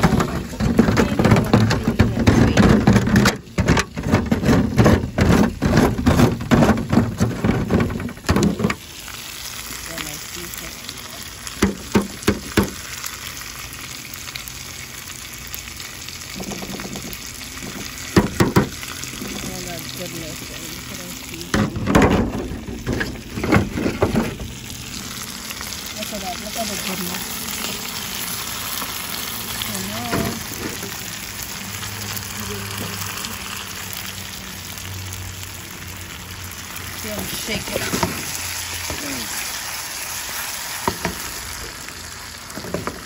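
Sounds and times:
knocks and scrapes: 0:00.0 - 0:08.8, 0:21.5 - 0:24.6
fish sizzling in a pot: 0:00.0 - 0:43.0.

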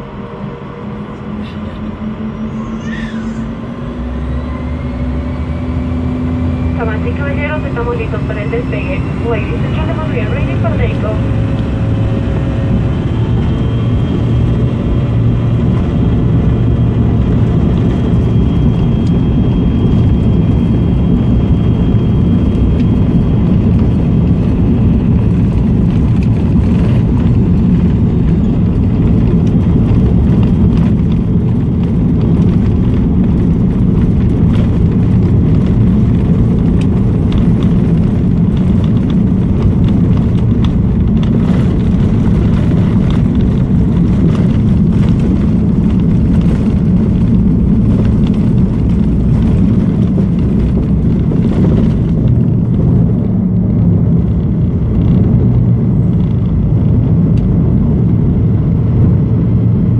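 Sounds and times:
deep rumble of takeoff roll: 0:00.0 - 0:59.9
jet engines running: 0:00.0 - 0:59.9
thin high whine: 0:00.2 - 0:05.8.

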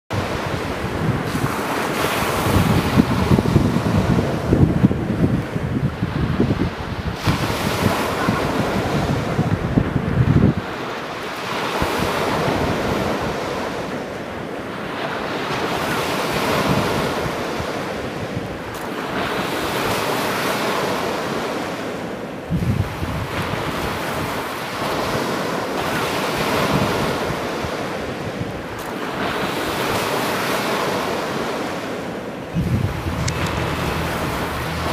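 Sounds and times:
ocean surf breaking: 0:00.1 - 0:34.9.

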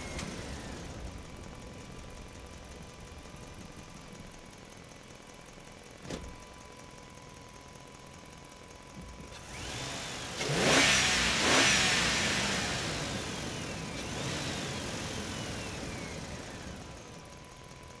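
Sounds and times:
vehicle engine revving: 0:09.4 - 0:17.0.

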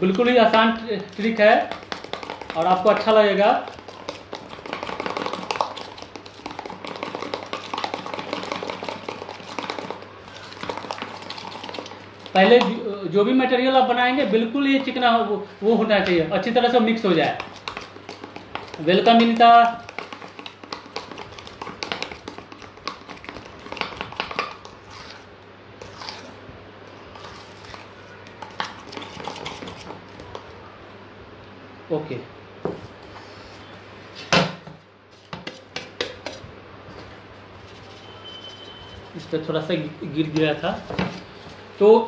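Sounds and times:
stirrer clicking in steel tumbler: 0:00.1 - 0:12.8, 0:17.2 - 0:25.1.

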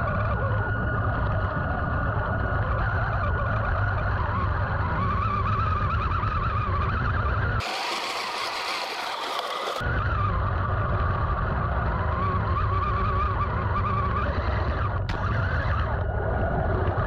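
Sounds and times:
tracks rumbling: 0:05.2 - 0:17.0
electric motors whining: 0:07.6 - 0:09.9.

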